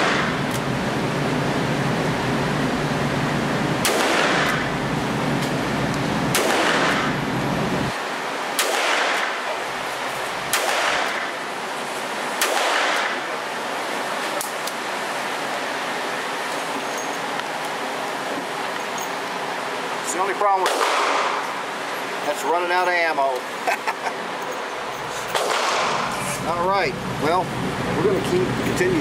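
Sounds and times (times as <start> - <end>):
revolver gunshots echoing indoors: 3.8 - 4.8, 6.3 - 7.3, 8.0 - 9.6, 10.5 - 11.5, 12.3 - 13.4, 20.6 - 21.6, 25.3 - 26.1.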